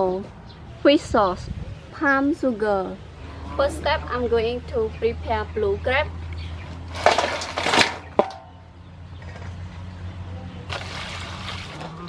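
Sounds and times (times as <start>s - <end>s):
metal basin rattling and scraping: 6.7s - 8.6s, 10.7s - 12.0s.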